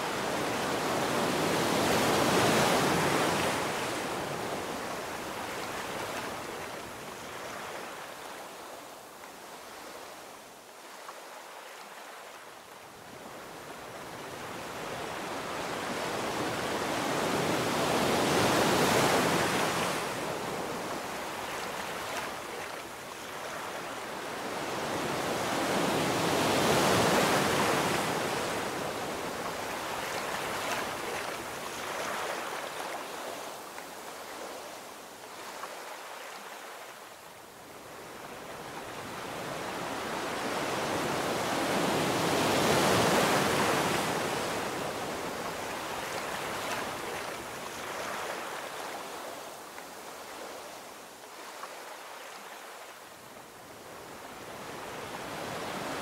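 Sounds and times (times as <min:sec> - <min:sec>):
surf breaking on a beach: 0:13.4 - 0:36.7, 0:38.0 - 0:53.0.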